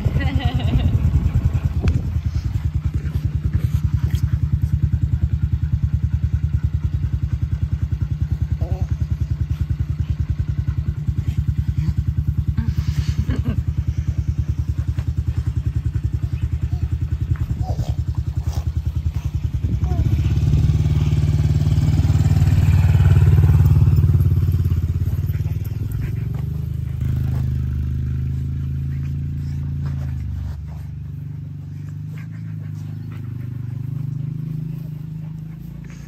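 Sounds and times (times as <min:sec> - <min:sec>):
dirt bike engine idling: 0:00.0 - 0:36.0.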